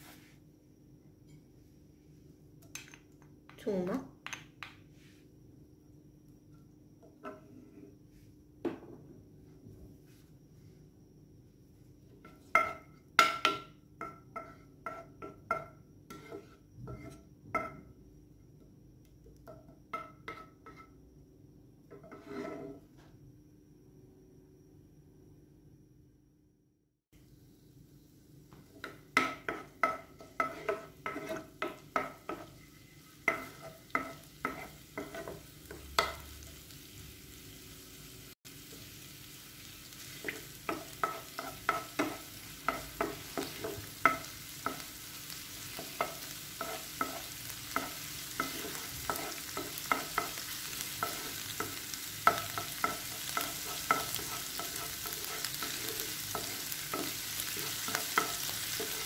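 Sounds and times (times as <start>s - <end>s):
wooden spoon tapping frying pan: 12.3s - 15.7s, 28.8s - 32.5s, 33.2s - 36.3s, 40.2s - 44.9s, 45.7s - 59.0s
oil sizzling: 28.6s - 59.0s.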